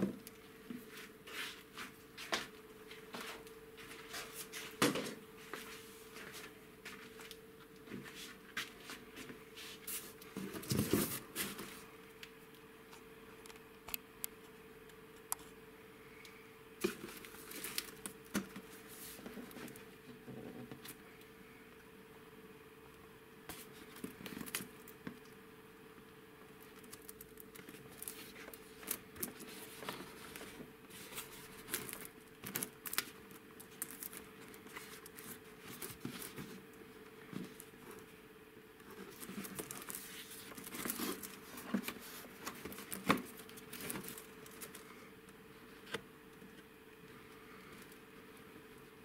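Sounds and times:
cardboard and plastic rustling: 0:00.0 - 0:11.9, 0:16.8 - 0:21.0, 0:23.5 - 0:25.2, 0:26.6 - 0:38.1, 0:38.8 - 0:45.0
faint steady hum: 0:00.0 - 0:49.0.

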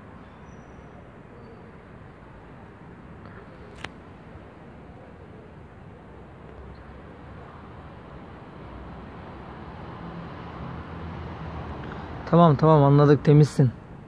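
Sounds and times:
distant road traffic hum: 0:00.0 - 0:14.0.

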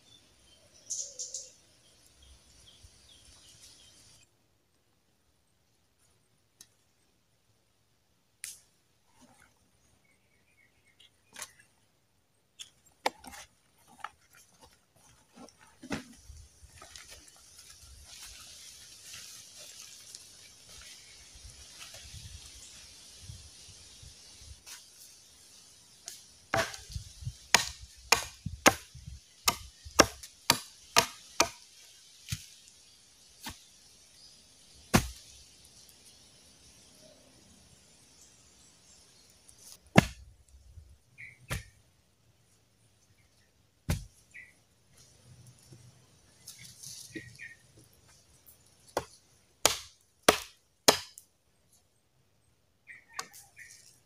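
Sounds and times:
machete chopping wood: 0:26.5 - 0:31.6, 0:34.9 - 0:35.2, 0:39.8 - 0:40.3, 0:41.5 - 0:41.8, 0:43.9 - 0:44.2, 0:48.9 - 0:51.2.

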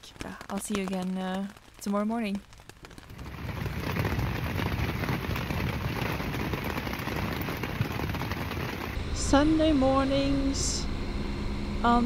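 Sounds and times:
rain on tent fabric: 0:00.0 - 0:09.0.

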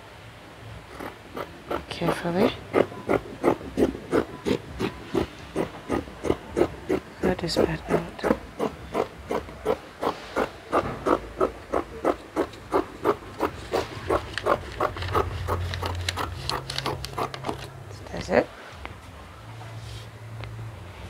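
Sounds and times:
low steady hum: 0:00.0 - 0:21.0
scissors snipping paper: 0:07.6 - 0:17.7.

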